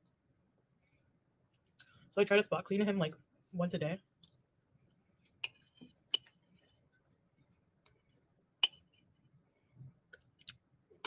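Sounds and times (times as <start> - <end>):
metal spoon clinking on ceramic bowl: 8.6 - 8.9.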